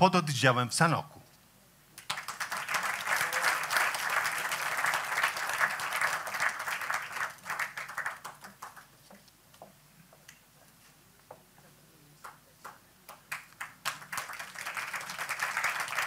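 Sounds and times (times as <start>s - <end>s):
audience applauding: 2.0s - 8.9s, 13.1s - 16.0s.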